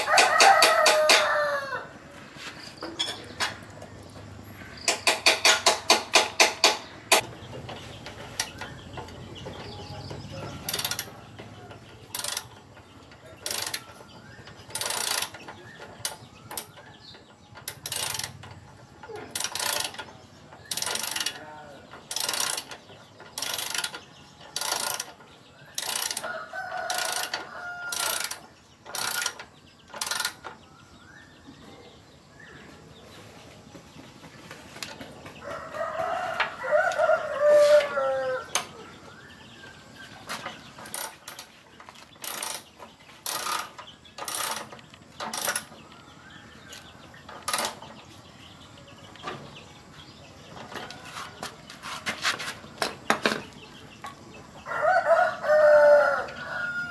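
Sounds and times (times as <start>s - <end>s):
rooster crowing: 0.0s - 2.0s, 26.2s - 28.2s, 35.4s - 38.6s, 54.6s - 56.9s
ratchet wrench clicking: 10.6s - 11.2s, 12.0s - 12.6s, 13.4s - 13.9s, 14.7s - 15.4s, 17.6s - 18.4s, 19.2s - 21.4s, 22.1s - 22.8s, 23.4s - 30.4s, 40.8s - 41.5s, 42.2s - 45.7s.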